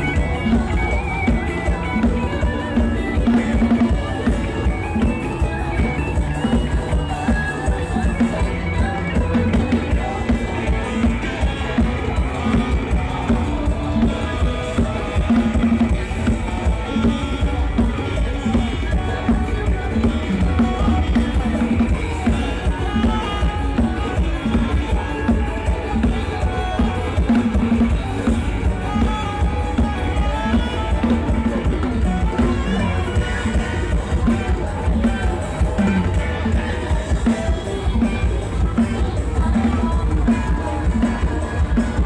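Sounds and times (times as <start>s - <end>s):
music with drums and heavy bass: 0.0s - 42.0s.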